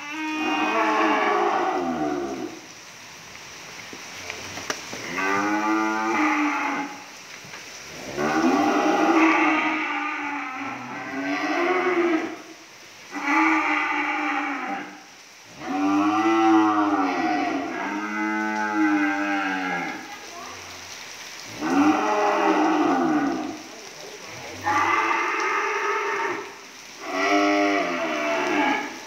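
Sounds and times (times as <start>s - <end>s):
cattle mooing: 24.6s - 29.0s.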